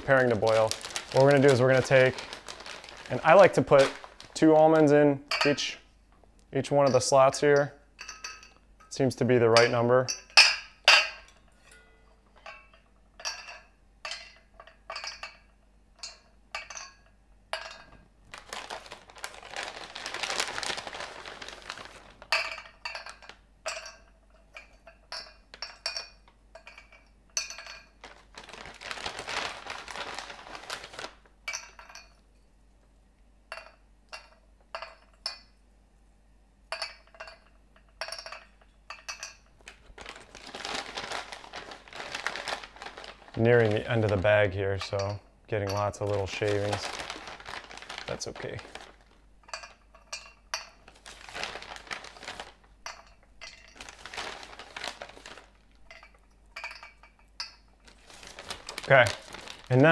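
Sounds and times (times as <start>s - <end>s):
almonds clinking in metal tin: 0.0s - 5.8s, 40.2s - 59.9s
plastic bag rustling: 0.0s - 5.8s, 18.2s - 23.5s, 27.4s - 31.9s, 39.6s - 59.9s.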